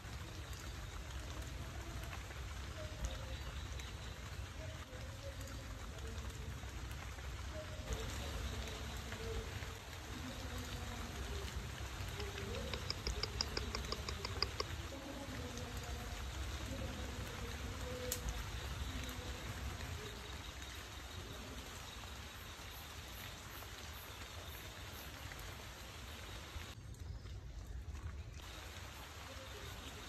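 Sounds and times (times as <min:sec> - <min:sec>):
rainforest ambience hiss: 0:00.0 - 0:27.2, 0:28.4 - 0:30.0
rapid high ticks: 0:12.0 - 0:15.0.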